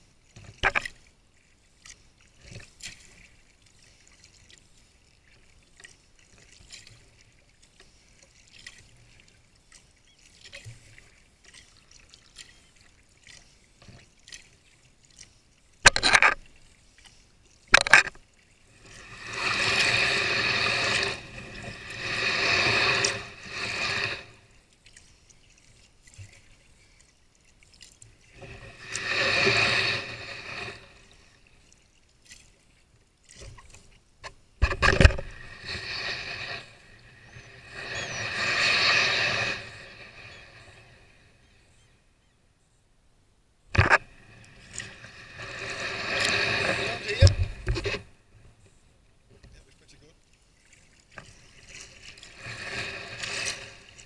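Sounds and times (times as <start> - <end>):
paddle drips: 0.3 - 41.0.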